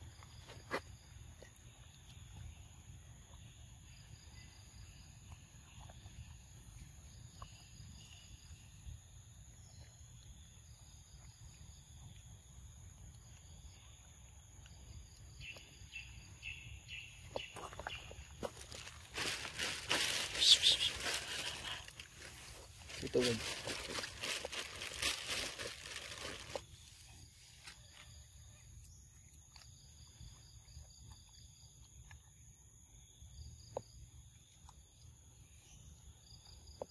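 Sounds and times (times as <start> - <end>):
insect drone: 0.0 - 36.9
chirps: 13.3 - 21.9.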